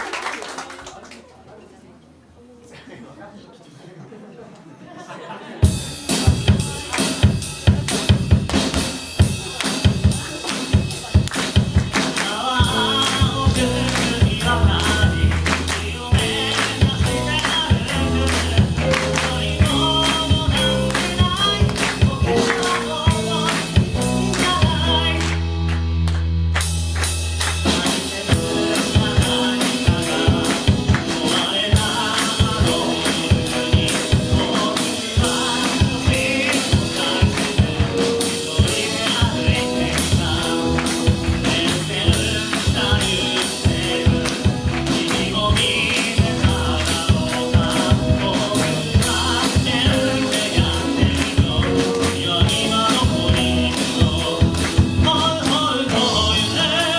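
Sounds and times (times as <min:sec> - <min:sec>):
drum kit beat: 0:05.6 - 0:56.9
electric guitar: 0:05.7 - 0:56.9
person singing: 0:11.9 - 0:25.8, 0:27.5 - 0:56.9.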